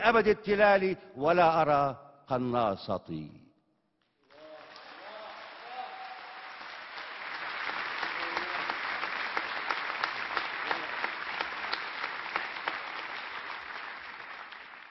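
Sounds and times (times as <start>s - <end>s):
large audience applauding: 4.2s - 14.9s.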